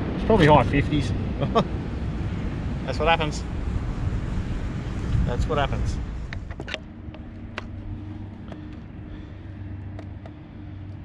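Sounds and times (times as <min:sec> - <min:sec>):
steady low hum: 0:00.0 - 0:11.0
fishing gear clicks and knocks: 0:06.3 - 0:09.0, 0:09.8 - 0:11.0.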